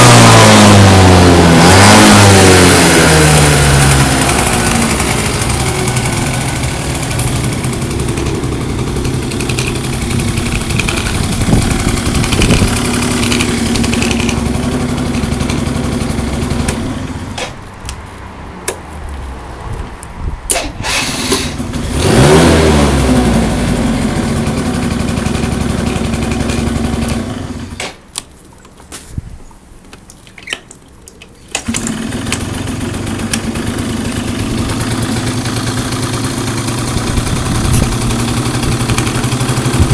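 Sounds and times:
scooter engine revving: 0.0 - 17.6, 20.5 - 27.8, 31.6 - 39.9
scooter engine idling: 0.0 - 17.9, 20.8 - 27.8, 31.6 - 39.9
clicks: 9.0 - 11.3, 12.2 - 14.5.

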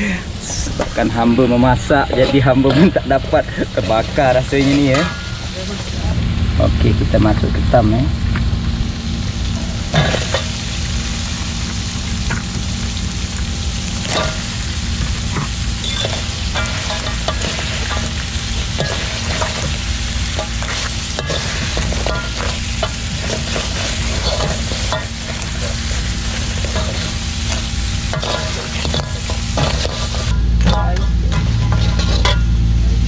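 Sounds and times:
crabs sizzling in a wok: 0.0 - 33.0
low rumble: 0.0 - 33.0
metal spatula scraping a wok: 1.9 - 6.2, 9.5 - 10.8, 14.0 - 32.6.

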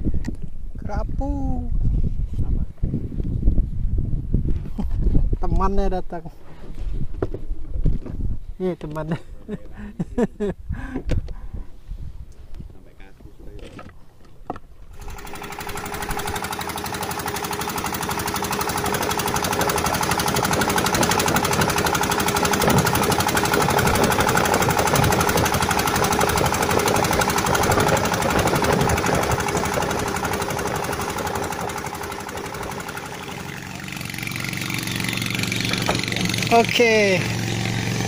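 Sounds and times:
low hum: 14.8 - 38.0
boat engine knocking: 15.0 - 38.0.

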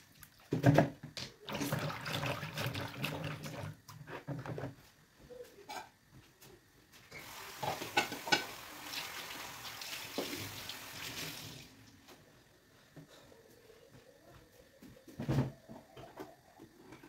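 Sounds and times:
water running and splashing: 7.2 - 11.9.

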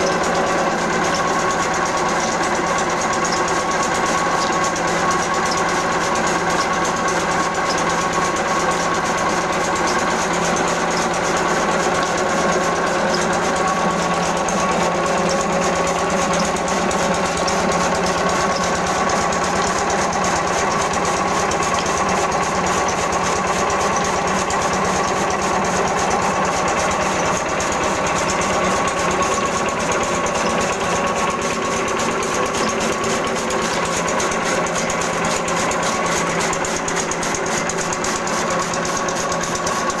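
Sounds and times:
chaff cutter chopping fodder: 0.0 - 40.0
diesel engine running: 0.0 - 40.0.

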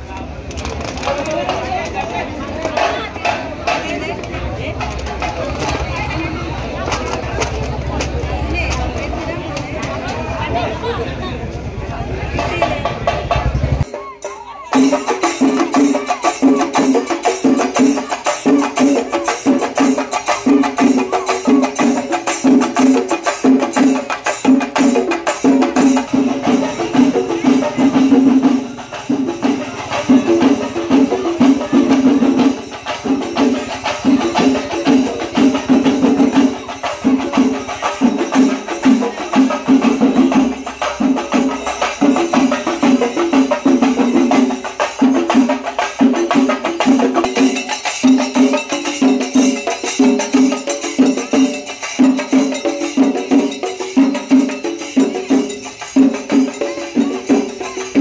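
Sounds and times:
rapid drumming: 0.3 - 10.8, 11.6 - 58.0
jingling cymbal-like percussion: 1.4 - 58.0.

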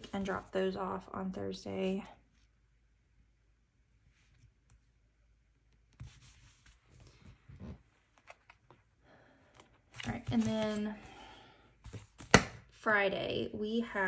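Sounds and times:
paper rustling: 9.9 - 11.0.

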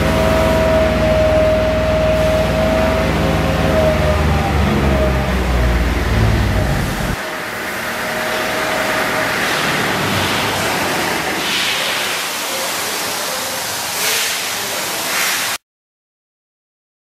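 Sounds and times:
pressure washer spraying water: 4.7 - 15.6.

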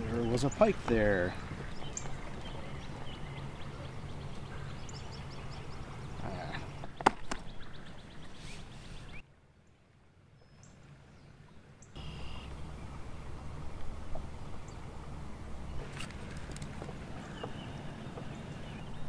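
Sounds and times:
river ambience: 0.0 - 19.0
bird-like chirps: 11.8 - 12.6
steady low rumble: 12.0 - 18.0.

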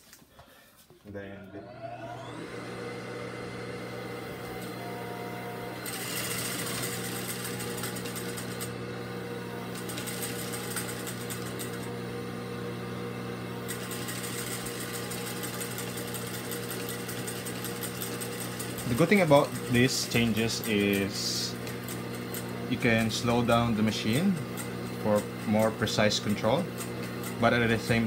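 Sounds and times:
motor humming: 1.3 - 28.0
sewing machine stitching fabric: 4.0 - 12.0, 13.6 - 28.0.

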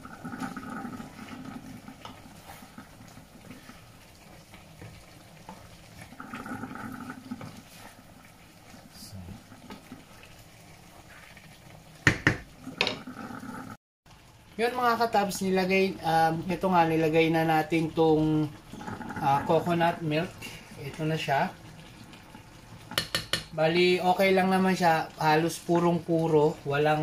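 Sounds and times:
curry sauce simmering: 0.0 - 12.8, 14.1 - 27.0
wooden spatula stirring curry: 3.4 - 6.1, 7.2 - 8.8
sharp knocks: 12.0 - 13.0.

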